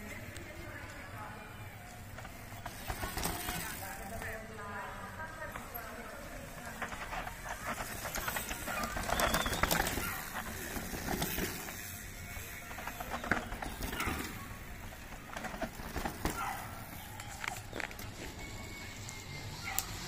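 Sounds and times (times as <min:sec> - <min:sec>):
mountain bikes rattling: 0:00.0 - 0:20.0
wheels knocking on steps: 0:06.8 - 0:11.8.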